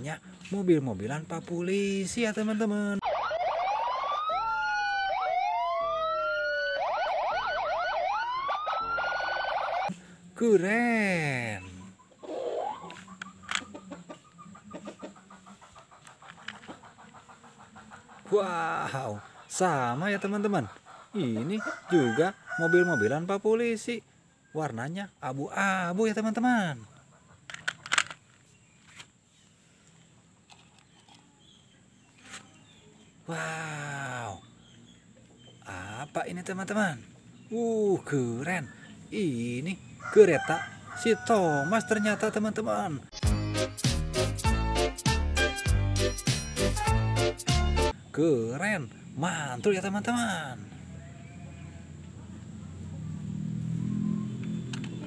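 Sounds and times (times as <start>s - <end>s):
police siren: 3.0s - 9.9s
toy car clattering into basket: 27.5s - 28.3s.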